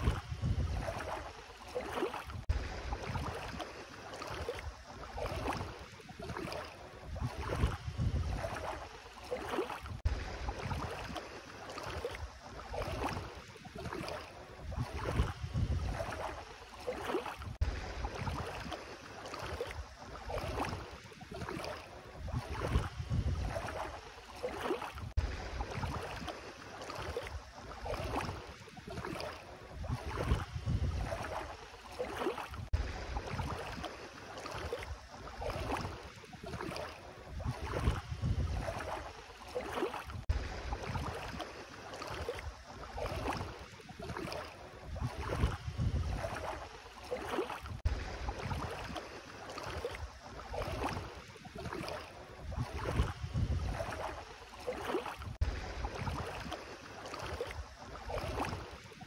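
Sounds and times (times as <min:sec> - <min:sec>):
wind rumble on microphone: 0:00.0 - 0:01.3, 0:02.2 - 0:03.6, 0:04.6 - 0:08.9, 0:09.8 - 0:11.2, 0:12.0 - 0:16.4, 0:17.4 - 0:18.7, 0:21.5 - 0:24.0, 0:24.9 - 0:26.3, 0:27.3 - 0:31.6, 0:32.5 - 0:33.8, 0:34.9 - 0:39.1, 0:40.1 - 0:41.4, 0:42.4 - 0:46.7, 0:47.6 - 0:49.0, 0:50.0 - 0:54.2, 0:55.2 - 0:56.5
feet wading through water: 0:00.0 - 0:59.0.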